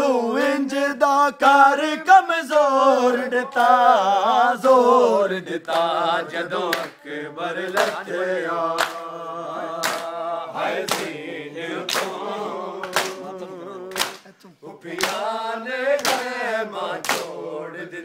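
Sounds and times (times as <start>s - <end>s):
men chanting together: 0.0s - 18.0s
hands beating chests: 13.9s - 14.4s.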